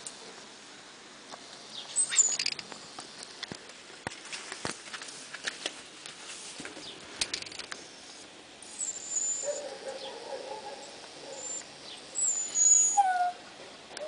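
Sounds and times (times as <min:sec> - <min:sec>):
puppy whimpering: 0:08.8 - 0:09.6, 0:12.2 - 0:13.4.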